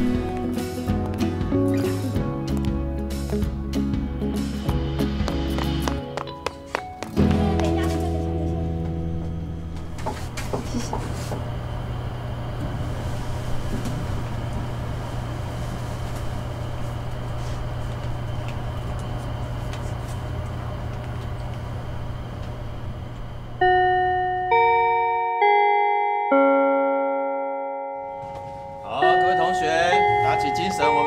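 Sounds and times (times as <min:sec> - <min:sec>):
elevator hum: 0:00.0 - 0:31.0
bell-like chime notes: 0:23.6 - 0:31.0.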